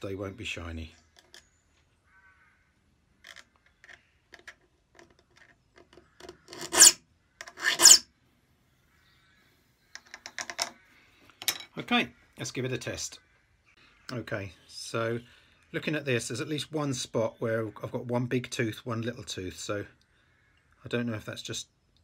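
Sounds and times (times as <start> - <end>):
file rasping on saw teeth: 6.5 - 8.0.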